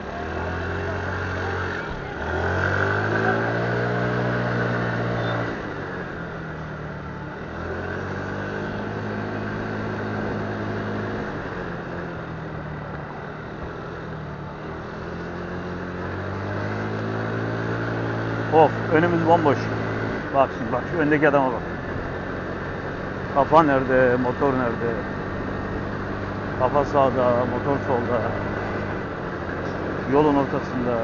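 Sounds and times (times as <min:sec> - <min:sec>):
motorcycle engine pulling away: 0:00.0 - 0:31.0.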